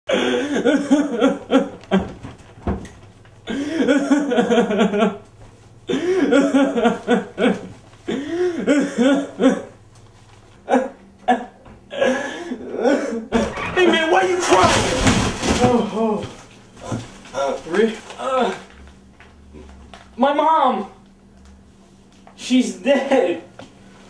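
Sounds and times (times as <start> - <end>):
man sobbing: 0.1 - 1.8, 3.5 - 5.1, 5.9 - 9.7, 10.7 - 15.0.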